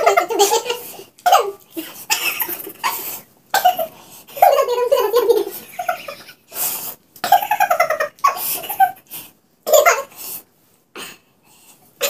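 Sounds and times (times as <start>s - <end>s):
women laughing: 5.2s - 6.5s.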